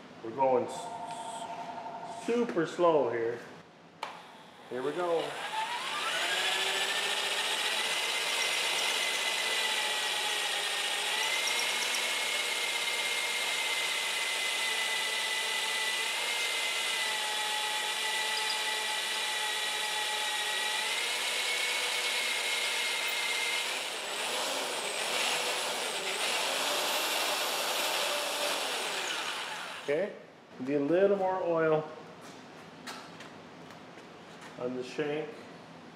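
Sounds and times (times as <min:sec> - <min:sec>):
electric drill motor whining: 0:05.1 - 0:29.9.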